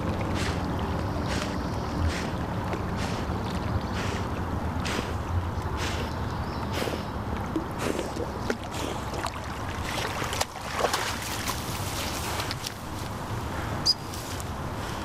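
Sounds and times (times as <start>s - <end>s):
water splashing: 0.0s - 6.2s, 7.3s - 13.1s
reeds rustling: 11.0s - 13.2s.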